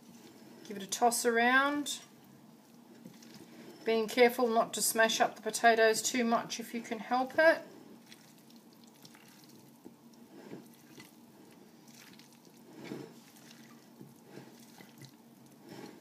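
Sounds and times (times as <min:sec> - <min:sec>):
spatula squelching and scraping bowl: 0:02.6 - 0:04.2, 0:07.3 - 0:16.0.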